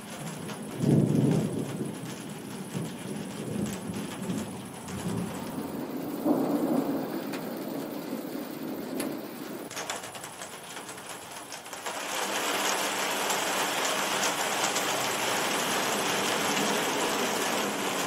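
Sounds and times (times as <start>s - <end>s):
thunder rumbling: 0.0s - 11.5s
steady rain: 0.0s - 18.0s.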